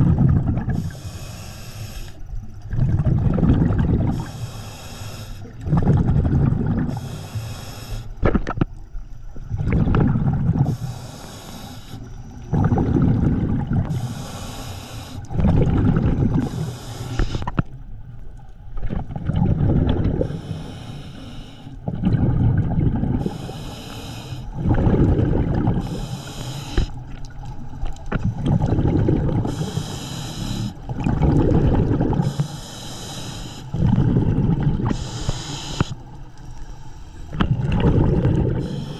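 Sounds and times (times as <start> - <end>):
exhaled bubbles rumbling: 0.0 - 1.2, 2.4 - 4.4, 5.4 - 7.2, 8.2 - 11.1, 12.2 - 14.2, 15.2 - 21.0, 21.8 - 32.6, 33.7 - 36.4, 37.3 - 38.9
diver inhaling through regulator: 0.6 - 2.4, 4.0 - 5.7, 6.8 - 8.2, 10.6 - 15.4, 16.2 - 17.6, 20.1 - 22.0, 23.1 - 27.1, 28.6 - 38.9.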